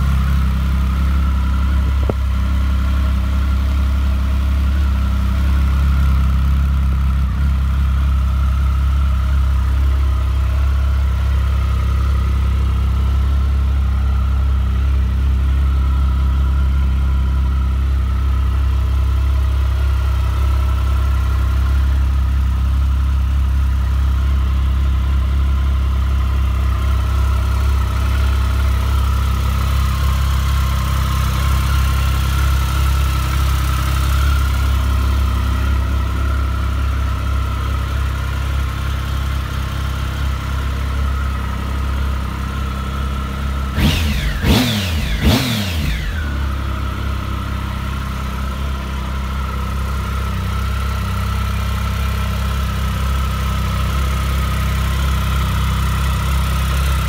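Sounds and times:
motorcycle engine idling and revving: 0.0s - 57.0s.

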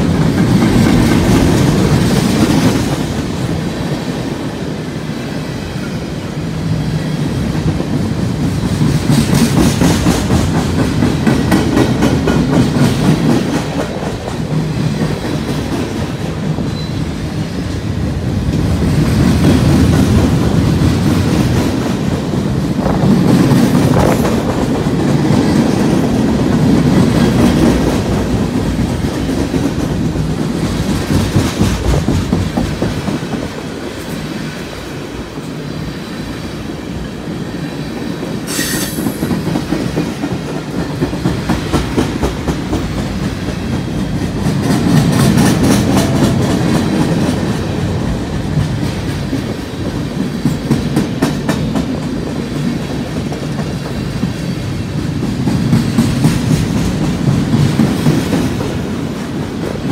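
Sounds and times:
freight train rumbling past: 0.0s - 59.9s
high squeal: 38.5s - 39.2s.

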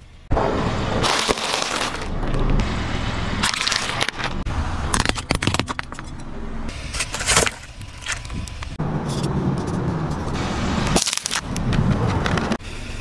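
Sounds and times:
low car sound: 0.0s - 13.0s
drink carton bursting: 1.0s - 2.1s
plastic container cracking: 1.0s - 2.5s.

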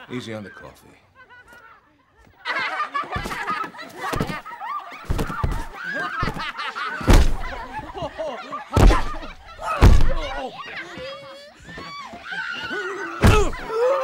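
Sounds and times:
girls shrieking and laughing: 0.0s - 14.0s
pillows thudding: 5.0s - 7.6s, 8.8s - 10.4s.

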